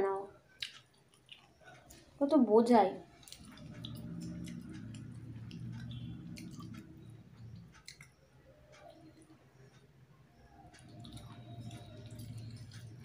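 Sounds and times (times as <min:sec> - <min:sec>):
chewing: 0:00.6 - 0:02.2, 0:03.1 - 0:09.8, 0:10.4 - 0:13.0.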